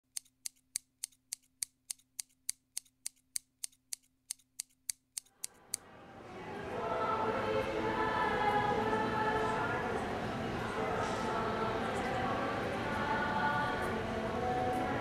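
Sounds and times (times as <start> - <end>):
scissors snipping: 0.0 - 5.8
music: 5.8 - 15.0.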